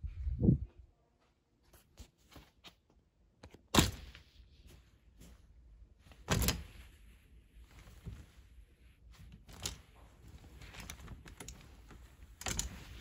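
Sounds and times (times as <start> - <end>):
clothes rustling: 1.6 - 13.0
plastic hangers clicking on rod: 10.6 - 13.0.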